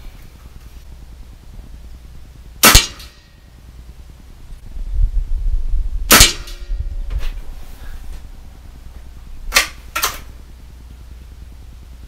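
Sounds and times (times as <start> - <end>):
air rifle shot: 2.6 - 3.2, 6.1 - 6.9
rifle barrel snapping open: 9.5 - 10.3.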